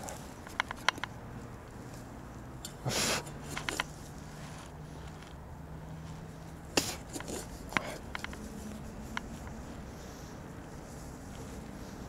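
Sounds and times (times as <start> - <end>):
shovel chopping and scraping soil: 6.0 - 9.4.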